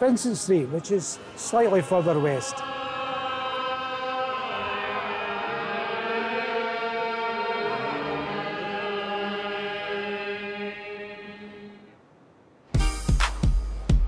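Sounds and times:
group chant-like singing: 0.9s - 11.9s.

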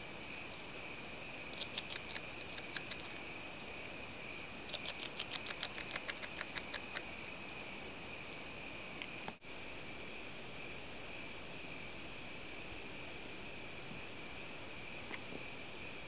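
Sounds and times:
beaver chewing crunching clicks: 1.6s - 3.2s, 4.7s - 7.1s.

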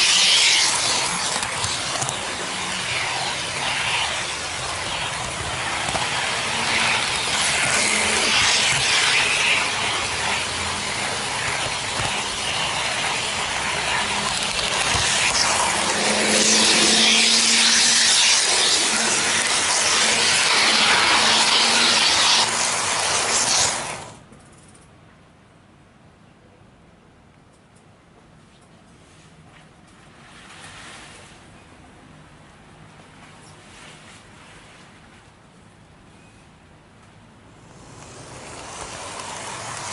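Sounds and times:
model train wheels rattling on rail: 0.0s - 24.1s, 37.8s - 39.9s
faint motor hum: 0.0s - 24.2s
faint outdoor background: 24.1s - 39.4s.

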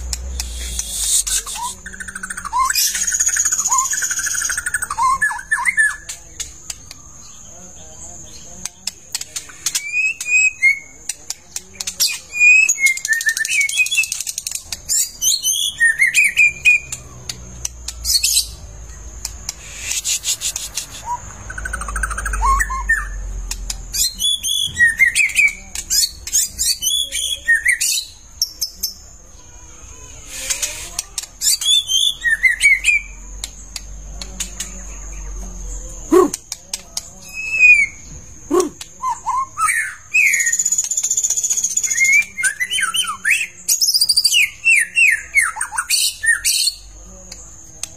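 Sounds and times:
harsh rasping bird calls: 0.0s - 7.4s, 12.1s - 23.2s, 23.9s - 33.2s
bird singing whistled phrases: 0.4s - 6.1s, 9.6s - 11.0s, 12.0s - 17.0s, 19.7s - 23.2s, 24.0s - 28.9s, 30.2s - 33.2s, 37.2s - 46.9s.

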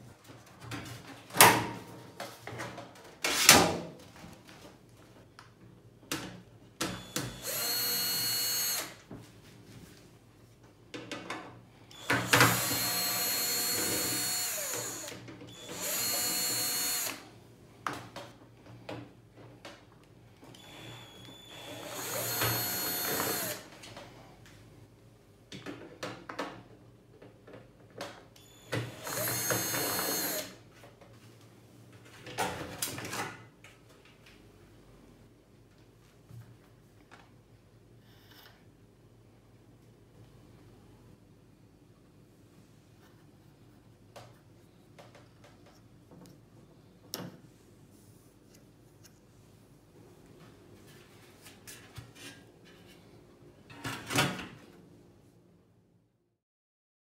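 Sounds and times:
electric screwdriver running: 7.0s - 9.0s, 12.0s - 17.2s, 20.6s - 23.6s, 28.8s - 30.6s.

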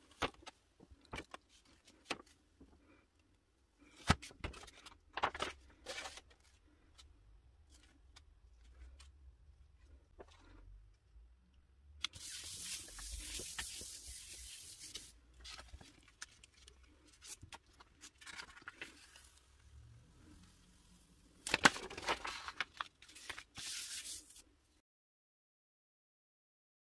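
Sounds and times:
hand rubbing paper: 12.2s - 15.9s, 23.1s - 24.4s
sharp paper rustles and taps: 21.4s - 24.0s.

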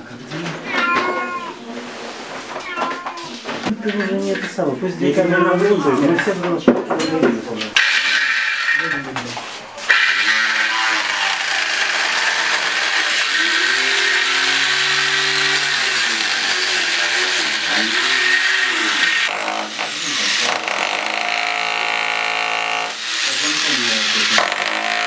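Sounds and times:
angle grinder cutting concrete: 7.8s - 9.0s, 9.9s - 25.0s
rotary hammer drill chiselling: 7.8s - 9.0s, 9.9s - 25.0s.

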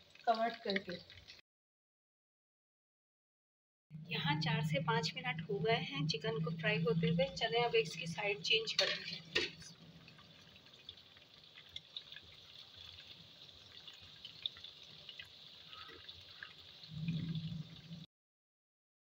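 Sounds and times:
chicken frying in oil: 0.0s - 1.4s, 4.9s - 18.1s
low rumble: 3.9s - 8.4s, 16.9s - 18.1s.

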